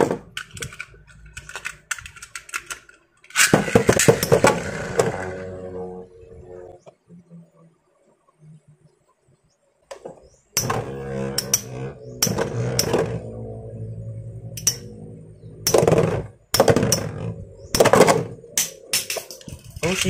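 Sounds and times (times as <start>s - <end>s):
metal tops clicking together: 18.6s - 20.0s.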